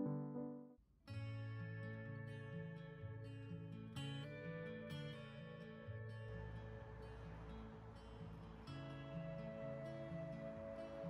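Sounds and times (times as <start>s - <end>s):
gentle instrumental guitar music: 1.1s - 11.0s.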